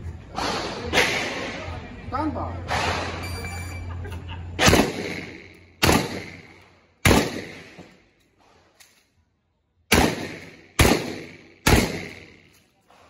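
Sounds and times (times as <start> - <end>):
shotgun shots echoing: 4.6 - 8.0, 9.9 - 12.6.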